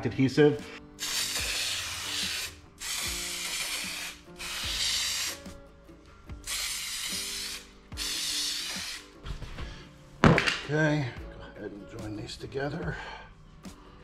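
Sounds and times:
aerosol can hissing: 0:01.0 - 0:05.6, 0:06.4 - 0:09.2.

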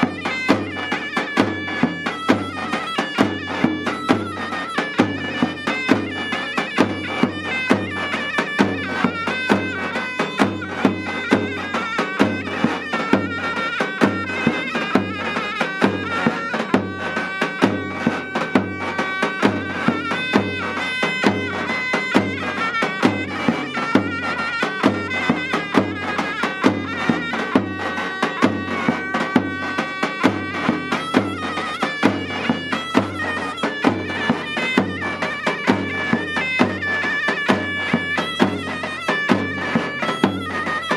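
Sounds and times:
large drum beats: 0:00.0 - 0:40.9
piercing reed pipe melody: 0:00.0 - 0:40.9.

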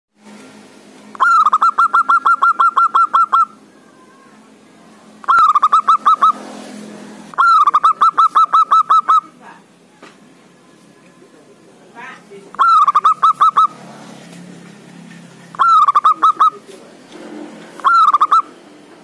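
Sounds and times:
dove cooing song: 0:01.2 - 0:03.6, 0:05.2 - 0:06.4, 0:07.3 - 0:09.4, 0:12.6 - 0:13.8, 0:15.5 - 0:16.7, 0:17.8 - 0:18.6.

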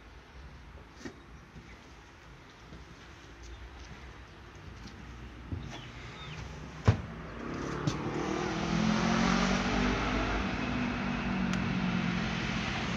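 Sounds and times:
passing motor vehicle: 0:05.9 - 0:12.9.

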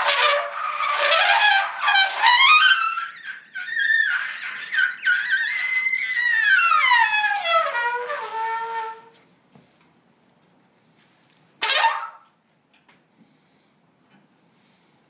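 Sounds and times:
sharp trumpet blast: 0:00.0 - 0:03.4, 0:11.6 - 0:12.3
trumpet glissando: 0:00.0 - 0:09.2, 0:11.6 - 0:12.3.

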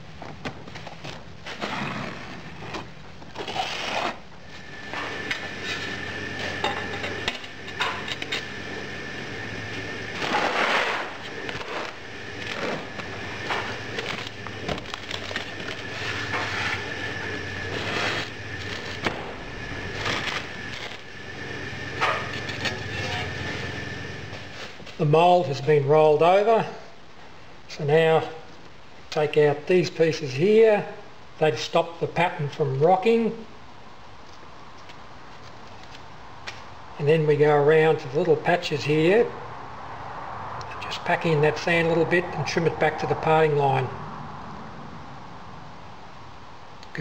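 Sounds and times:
sand scraped by hand: 0:10.2 - 0:12.0, 0:17.6 - 0:19.0.

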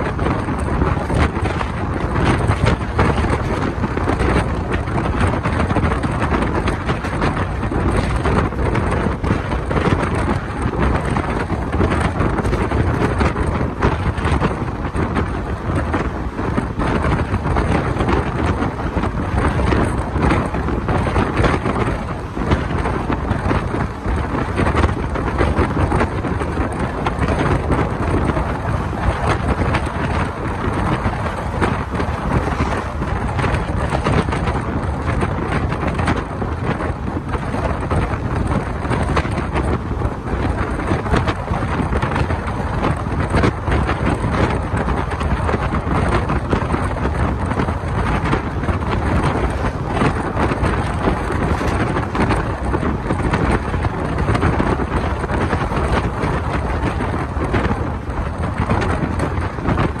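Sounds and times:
train wheels rumbling on rails: 0:00.0 - 1:00.0
wind buffeting microphone: 0:00.0 - 1:00.0.

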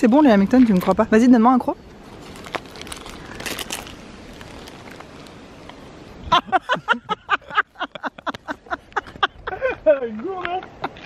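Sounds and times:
paper wrapper rustling: 0:02.0 - 0:05.4.

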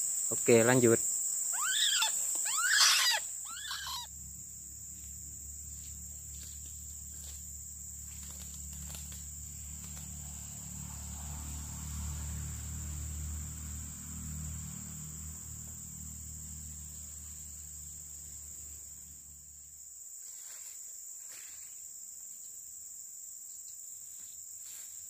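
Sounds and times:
crickets droning: 0:00.0 - 0:25.0
waterhen bird calls: 0:01.5 - 0:04.1.

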